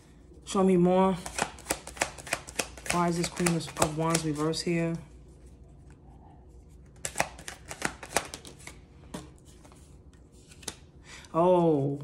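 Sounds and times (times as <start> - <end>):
sharp card snaps: 1.2 - 4.4, 7.0 - 8.7
cards being shuffled: 1.2 - 5.0, 6.8 - 10.9.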